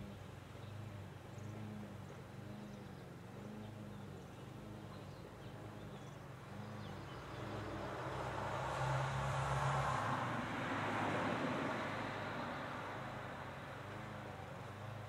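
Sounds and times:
faint bird chirps: 0.0s - 8.4s
distant engine hum: 0.0s - 15.0s.

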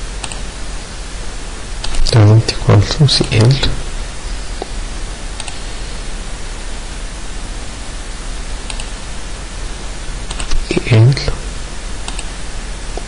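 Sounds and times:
microphone background hiss: 0.0s - 13.0s
computer mouse clicks: 0.2s - 0.4s, 5.4s - 5.6s, 8.7s - 8.9s, 10.3s - 10.6s, 12.1s - 12.3s.

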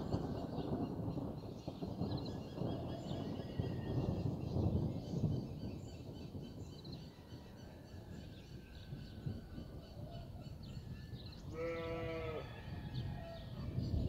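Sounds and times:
birds chirping faintly: 0.0s - 14.0s
thunder rumbling: 0.0s - 14.0s
animal bleating: 11.5s - 12.4s.

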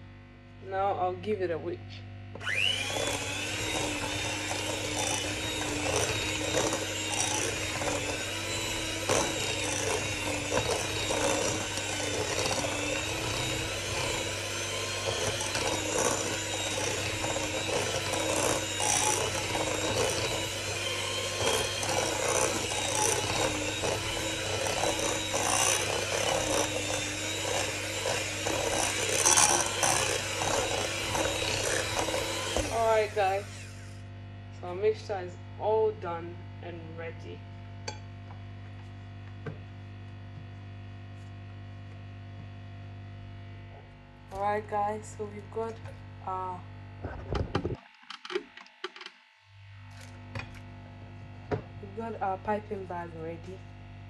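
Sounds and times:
electric hand mixer running: 2.4s - 34.1s
beaters scraping glass bowl: 3.0s - 33.1s.

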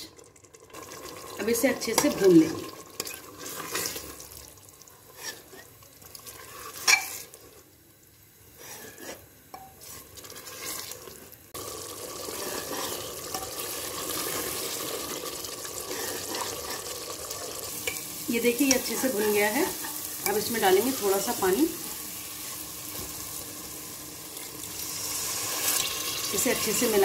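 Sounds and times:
sizzling frying: 0.0s - 27.0s
metal ladle scraping pot: 5.1s - 7.4s, 8.6s - 11.2s, 12.2s - 15.0s, 15.8s - 16.9s.

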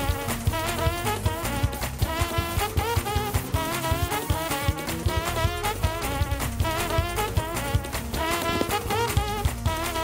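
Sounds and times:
quick steady drum beat: 0.0s - 10.0s.

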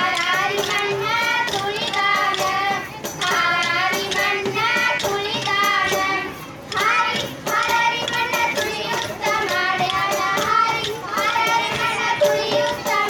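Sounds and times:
high voices singing: 0.0s - 13.0s.

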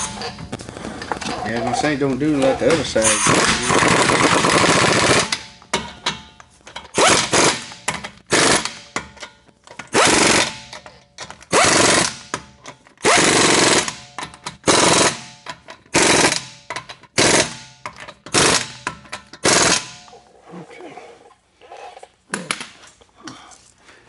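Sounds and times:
pneumatic impact wrench rattling: 2.7s - 20.1s.

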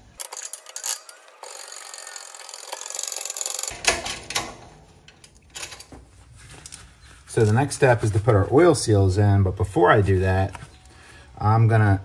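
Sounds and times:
metal parts clicking: 0.0s - 5.9s.

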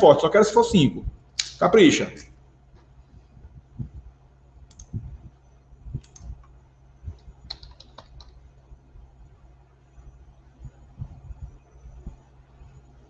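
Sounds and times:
low dull thumps: 3.3s - 4.2s, 10.6s - 12.3s
keyboard typing clicks: 4.7s - 5.0s, 6.0s - 8.4s.

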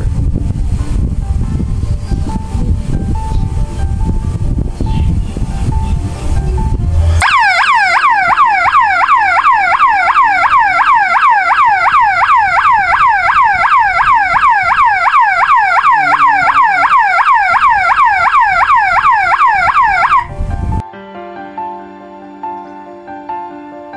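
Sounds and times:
alarm siren falling sweep: 6.6s - 20.8s.

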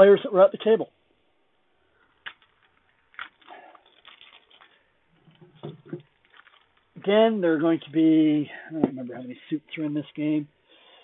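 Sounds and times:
thin plastic crinkling: 2.0s - 7.1s
plastic wrap tearing: 2.2s - 5.4s, 6.0s - 7.0s.

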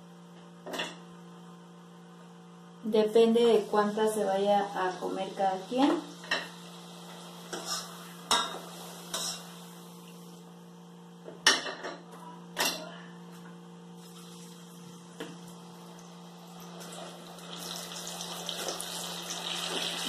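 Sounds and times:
electrical hum: 0.0s - 20.0s
utensils clinking on pan and plate: 7.5s - 9.6s.

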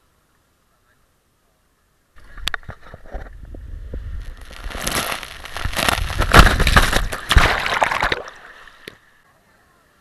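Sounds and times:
water rushing and splashing: 6.3s - 9.1s.

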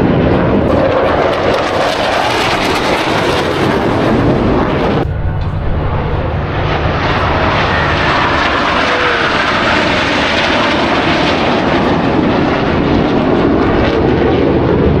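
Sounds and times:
jets flying past: 0.0s - 15.0s
faint falling whine: 3.3s - 10.6s.

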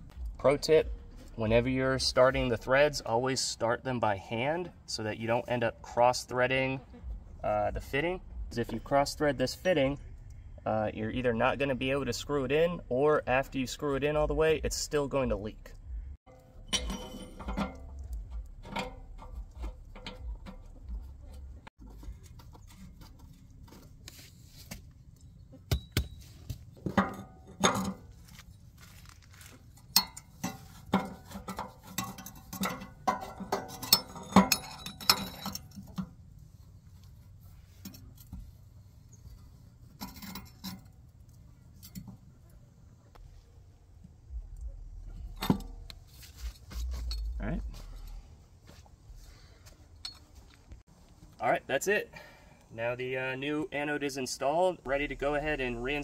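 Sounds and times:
metal tool clinking and clattering: 16.3s - 24.0s, 24.8s - 36.7s, 39.3s - 42.3s, 45.0s - 48.3s, 49.9s - 50.8s.

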